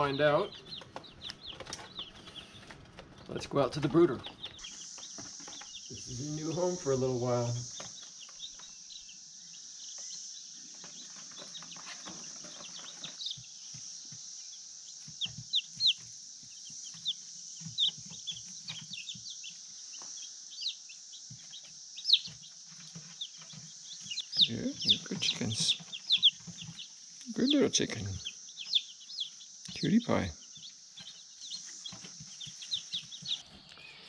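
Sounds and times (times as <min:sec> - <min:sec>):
chicks peeping: 0:00.0 - 0:34.0
steady high hiss: 0:03.3 - 0:11.7.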